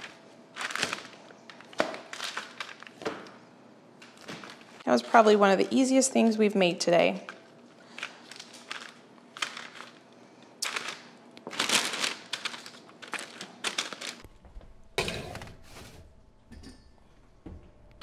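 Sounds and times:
parchment paper crinkling: 7.8s - 14.3s
sheet pan scraping on oven rack: 15.0s - 16.8s.

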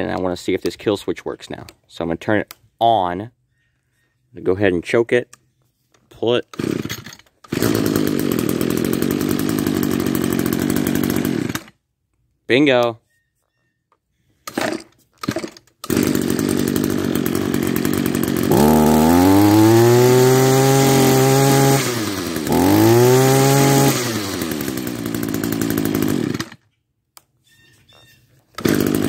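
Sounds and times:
string trimmer engine revving: 6.5s - 11.8s, 14.5s - 26.6s, 28.6s - 29.0s.

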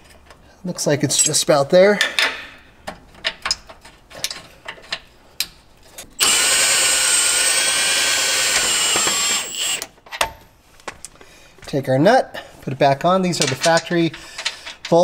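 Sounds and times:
handheld power tool running: 6.2s - 9.9s.

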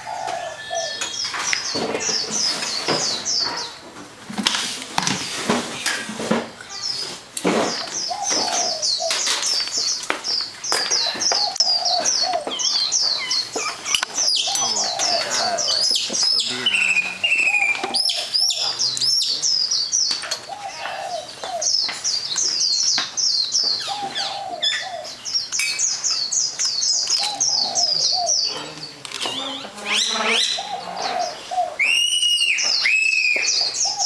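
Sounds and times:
whistled bird calls: 0.0s - 1.8s, 11.0s - 19.6s, 29.3s - 34.0s
small birds chirping: 0.0s - 4.0s, 5.0s - 34.0s.

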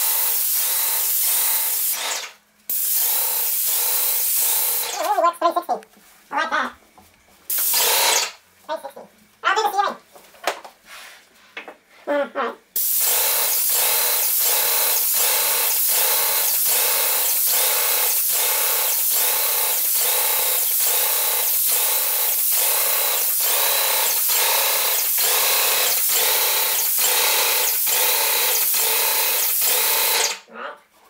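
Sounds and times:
paint sprayer hissing: 0.0s - 5.1s, 7.5s - 8.4s, 12.8s - 30.4s.

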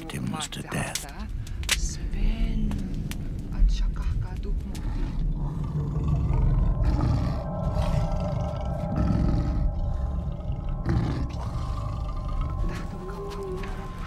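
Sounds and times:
big cat growling: 4.8s - 14.0s.

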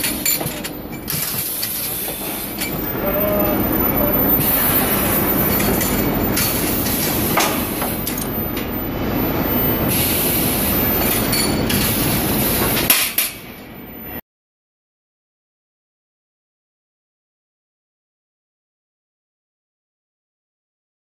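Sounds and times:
loud machinery din: 0.0s - 13.8s.

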